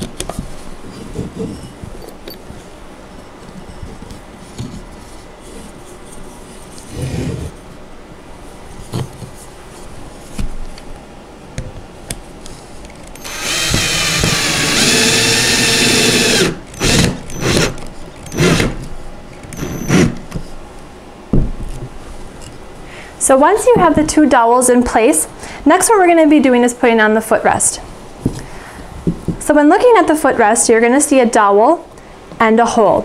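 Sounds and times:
cordless drill driving screws: 13.2 - 18.8, 19.5 - 20.2
knocks of handling parts: 21.3 - 22.0.

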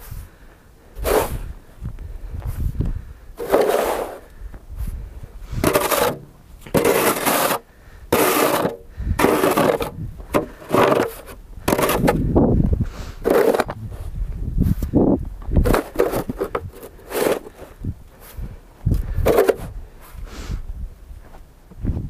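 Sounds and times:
plastic shovel scraping snow: 1.0 - 1.5, 3.4 - 4.3, 5.5 - 12.3, 13.2 - 13.8, 15.6 - 18.4, 19.2 - 19.7.

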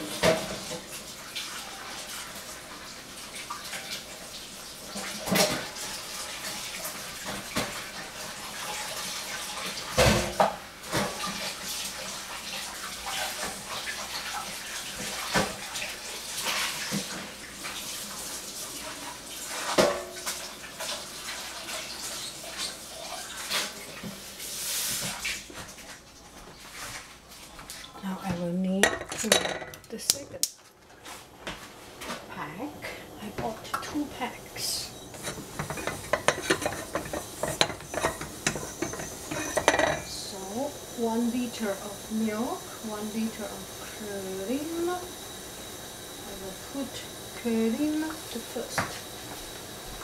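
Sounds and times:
tap water running into sink: 0.0 - 25.7, 35.0 - 50.0
kitchenware clattering against sink: 28.8 - 30.0, 35.1 - 40.2.

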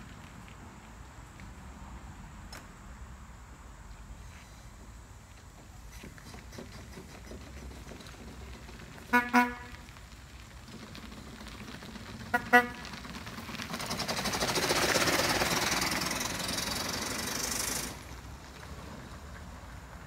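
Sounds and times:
wheels rolling on gravel: 0.0 - 2.4, 3.9 - 20.0
horn toots: 9.0 - 9.9, 12.3 - 12.9
steam engine running: 10.7 - 18.3
steam hissing: 13.9 - 18.2.

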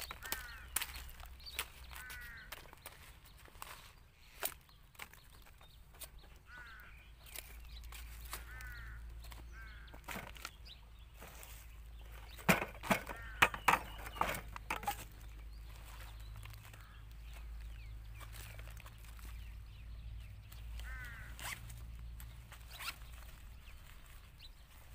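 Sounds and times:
bird calling: 0.0 - 24.9
metal rod scraping through dirt: 11.2 - 15.2.

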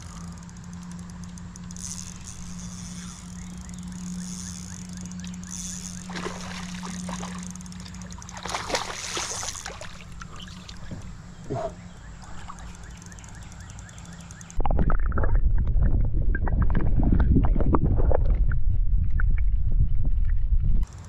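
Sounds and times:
steady low hum: 0.0 - 21.0
water sloshing and splashing: 5.9 - 11.2.

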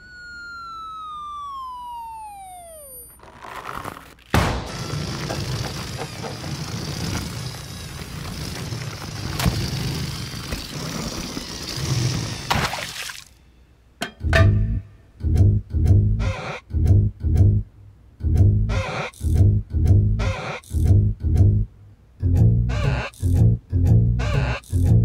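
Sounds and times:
falling slide whistle tone: 0.0 - 3.2.

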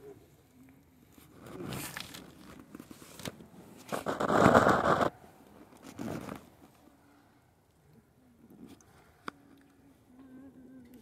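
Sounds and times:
microphone handling rustle: 1.2 - 5.1, 5.7 - 6.8.

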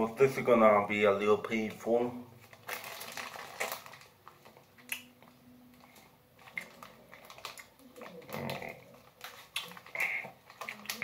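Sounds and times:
paper wrapper crinkling: 2.4 - 4.9, 5.8 - 11.0
faint chewing: 4.4 - 11.0.

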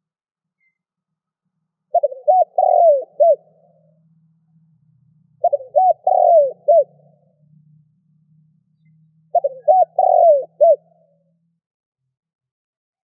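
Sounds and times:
faint low hum: 0.7 - 11.7
dove cooing: 1.9 - 3.9, 5.4 - 7.2, 9.3 - 11.0.

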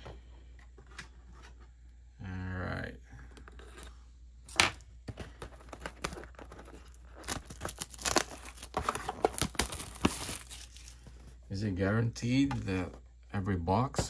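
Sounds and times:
plastic wrap crinkling and tearing: 5.7 - 11.0.

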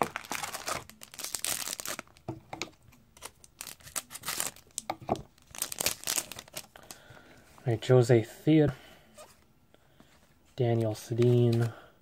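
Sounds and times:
wrapper crinkling and tearing: 0.0 - 2.2, 3.2 - 7.0.

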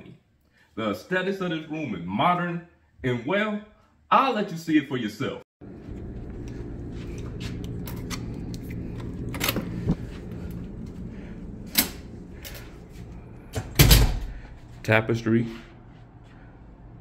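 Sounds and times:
steady low hum: 5.6 - 17.0.

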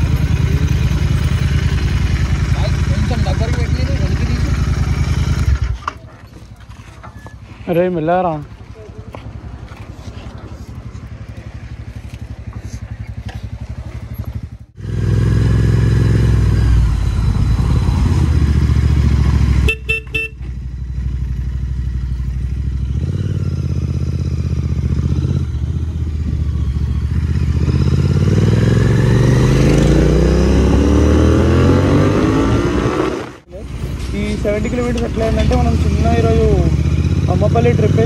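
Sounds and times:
motorcycle engine: 0.0 - 38.0
short horn toots: 19.6 - 20.5.

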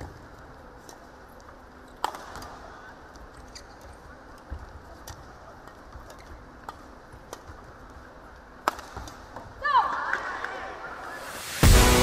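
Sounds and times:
rackets hitting shuttlecock: 1.9 - 2.7, 4.5 - 10.1.

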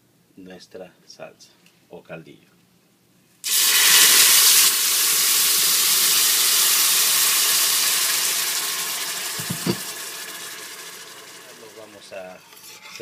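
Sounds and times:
salsa sizzling in hot oil: 3.4 - 12.2.

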